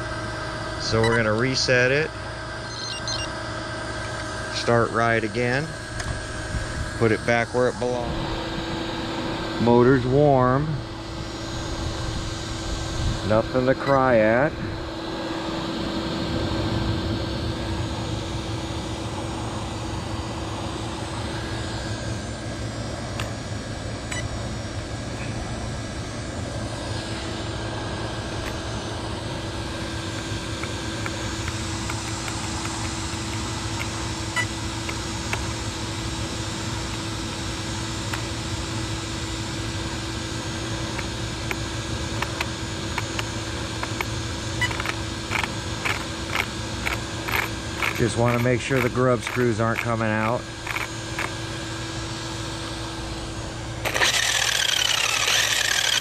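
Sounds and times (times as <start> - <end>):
mechanical hum and hiss: 0.0 - 56.0.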